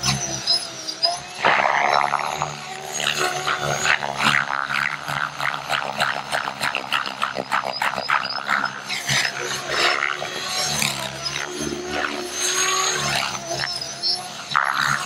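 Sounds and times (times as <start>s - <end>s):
rc helicopter flying: 0.0s - 15.0s.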